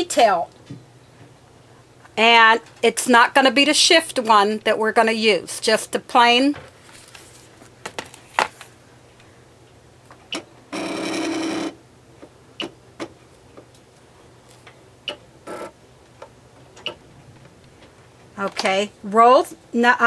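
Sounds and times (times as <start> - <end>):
cutting machine buzzing tone: 10.7 - 11.8, 15.1 - 15.8.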